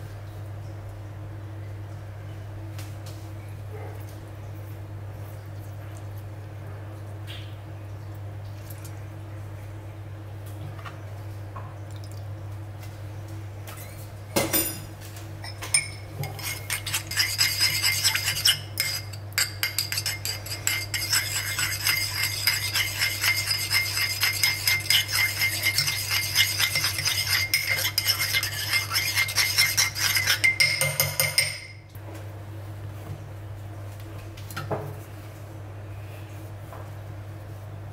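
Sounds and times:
spoon clinking against bowl: 15.4s - 31.8s
spoon stirring thick sauce: 15.8s - 31.5s.

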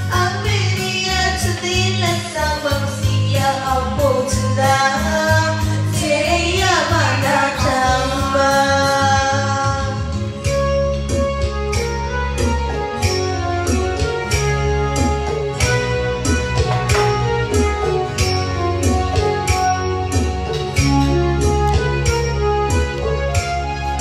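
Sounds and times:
woman singing into microphone: 0.0s - 10.6s
amplified backing music: 0.0s - 24.0s.

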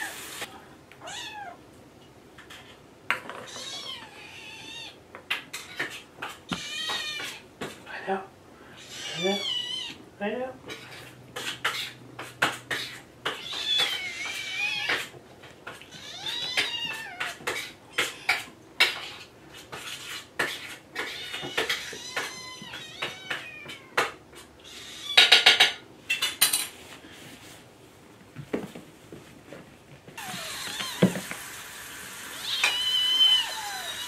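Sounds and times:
kittens meowing: 1.0s - 1.6s, 3.4s - 5.0s, 6.5s - 7.4s, 8.7s - 10.0s, 12.7s - 15.1s, 15.8s - 19.2s, 21.0s - 25.5s, 30.2s - 31.2s, 32.3s - 34.0s
dishes and cutlery clinking: 25.2s - 26.8s.

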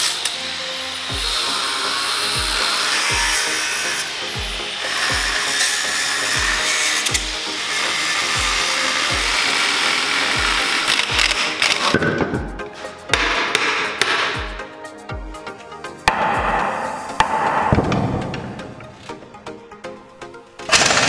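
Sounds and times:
angle grinder cutting steel: 0.0s - 14.4s
music with kick-drum beat: 1.1s - 19.8s.

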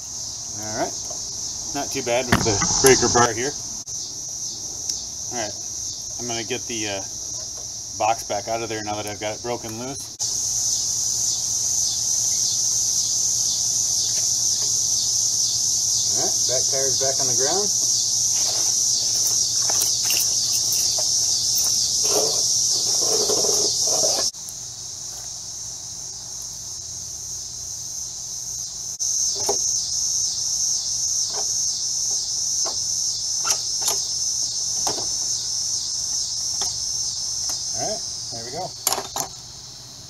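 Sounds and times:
insects buzzing: 0.0s - 40.0s
tools and metal parts clicking: 19.1s - 22.3s.

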